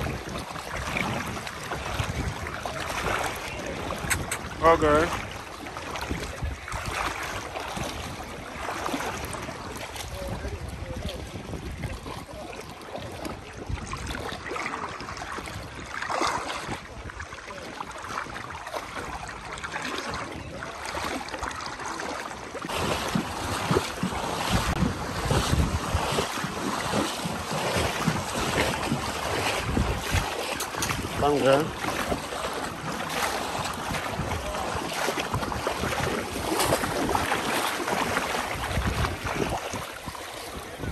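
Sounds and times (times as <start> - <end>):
wind buffeting microphone: 0.0 - 21.2, 22.6 - 40.9
water sloshing around horses' legs: 0.0 - 40.9.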